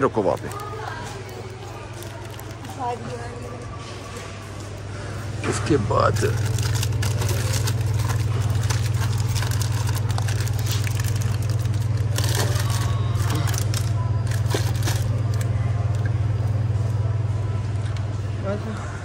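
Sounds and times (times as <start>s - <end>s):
steady low hum: 0.0s - 19.0s
packets being handled: 6.1s - 15.5s.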